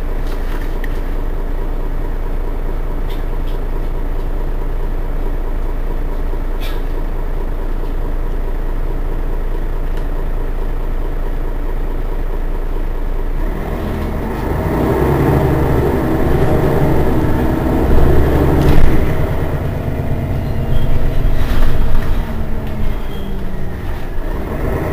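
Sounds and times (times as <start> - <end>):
bus engine idling: 0.0 - 24.9
rough engine revving: 13.3 - 24.9.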